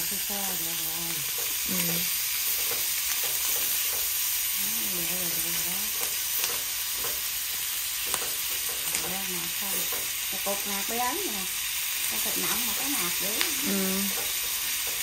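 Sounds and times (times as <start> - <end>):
meat sizzling in a pan: 0.0 - 15.0
chopsticks clicking against pan: 5.9 - 7.3, 8.0 - 10.2.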